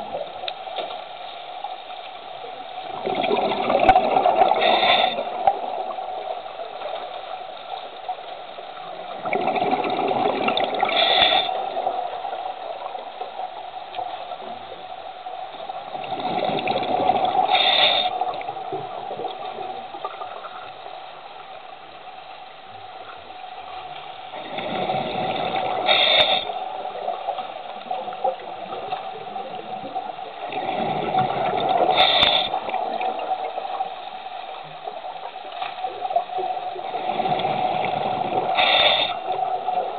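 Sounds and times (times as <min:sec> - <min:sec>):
rushing bubbles: 0:02.8 - 0:07.4, 0:08.8 - 0:13.4, 0:15.8 - 0:20.5, 0:24.3 - 0:39.9
diver breathing through regulator: 0:04.5 - 0:05.5, 0:10.8 - 0:11.8, 0:17.4 - 0:18.3, 0:24.6 - 0:26.6, 0:31.8 - 0:32.7, 0:37.0 - 0:39.4.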